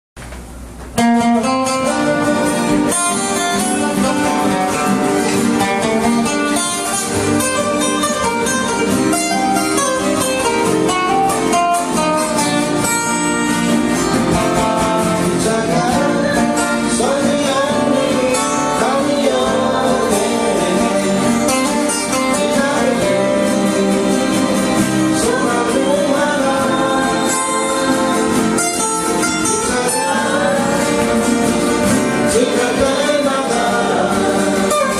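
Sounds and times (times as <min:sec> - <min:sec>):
acoustic guitars strummed: 0:00.2 - 0:34.9
man singing: 0:14.2 - 0:31.4, 0:32.1 - 0:34.9.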